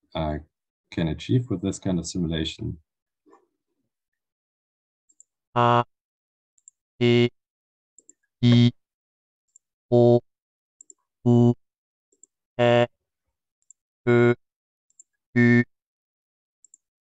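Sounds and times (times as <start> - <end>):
faint mouse clicks: 16.6 - 16.8.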